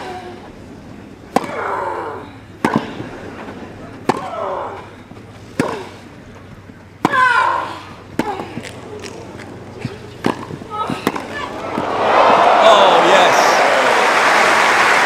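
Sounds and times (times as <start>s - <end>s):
racquets hitting tennis ball: 1.2s - 12.7s.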